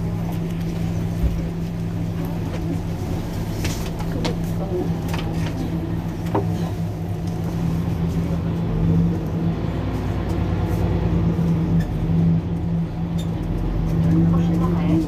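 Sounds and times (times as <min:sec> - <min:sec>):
bus engine idling: 0:00.0 - 0:15.0.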